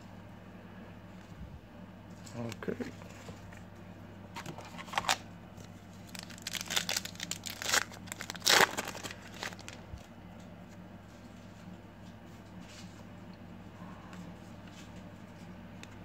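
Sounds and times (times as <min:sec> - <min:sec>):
plastic wrapper crinkling: 0:04.4 - 0:10.1.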